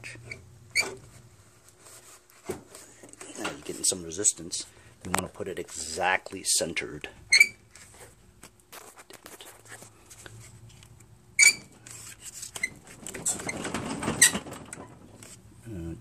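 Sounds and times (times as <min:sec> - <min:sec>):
rustling scrape: 0:01.0 - 0:04.0, 0:11.8 - 0:15.4
short high squeaks: 0:07.3 - 0:07.6, 0:11.4 - 0:11.8.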